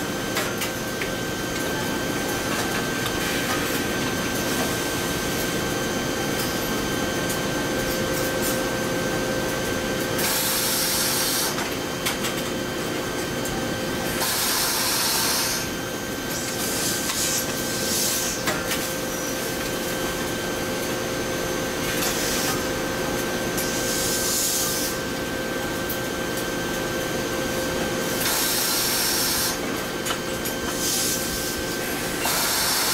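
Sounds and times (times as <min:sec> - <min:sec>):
ironing machines humming: 0:00.0 - 0:32.9.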